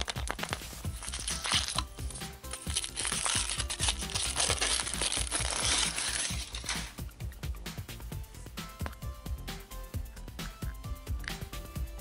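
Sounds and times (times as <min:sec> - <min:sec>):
foil wrapper crinkling and tearing: 0:00.0 - 0:07.0
background music: 0:00.0 - 0:12.0.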